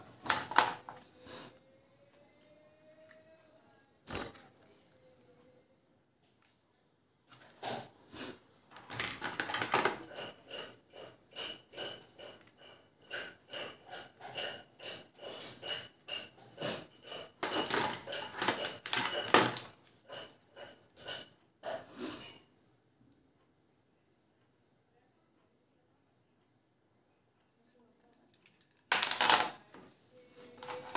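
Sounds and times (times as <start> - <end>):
hard plastic parts clicking and rattling: 0.0 - 1.1, 8.7 - 16.3, 17.0 - 21.2, 28.3 - 29.8, 30.4 - 30.9.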